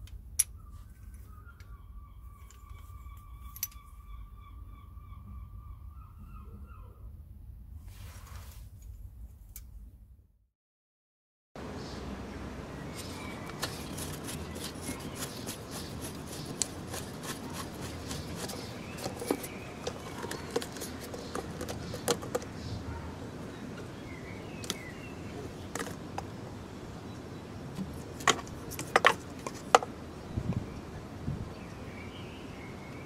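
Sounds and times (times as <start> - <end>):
plastic cap unscrewing clicks: 13.5 - 22.5.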